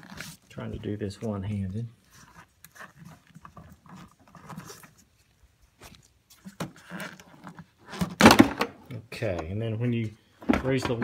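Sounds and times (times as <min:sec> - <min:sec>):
rubbery squeaks: 0:00.0 - 0:00.7, 0:02.0 - 0:08.2
rubber scraping: 0:00.0 - 0:08.3.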